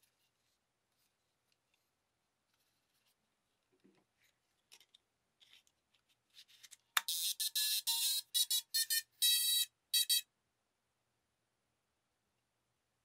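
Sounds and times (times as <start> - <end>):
short high electronic beeps: 7.1 - 10.2.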